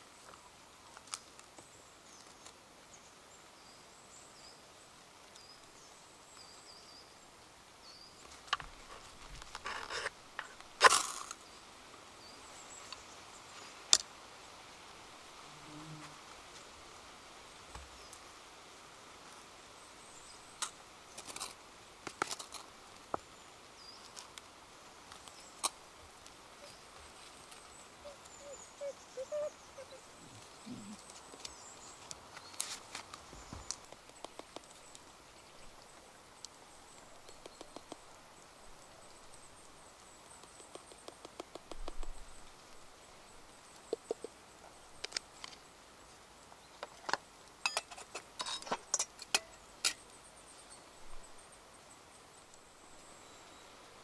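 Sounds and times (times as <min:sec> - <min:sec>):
steady hiss: 0:00.0 - 0:54.0
faint bird chirps: 0:26.5 - 0:42.4.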